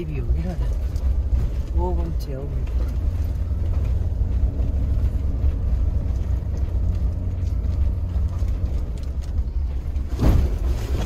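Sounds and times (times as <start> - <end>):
engine and road rumble: 0.0 - 11.0.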